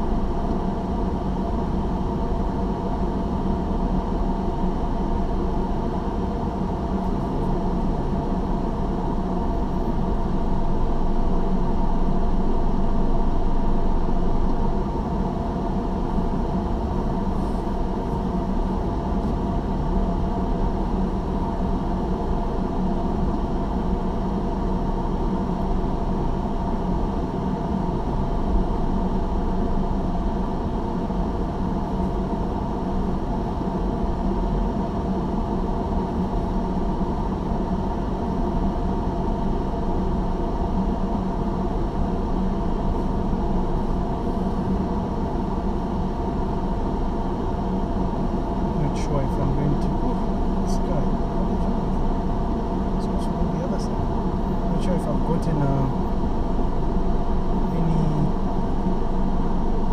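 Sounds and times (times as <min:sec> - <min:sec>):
car engine and tyres humming: 0:00.0 - 0:59.9.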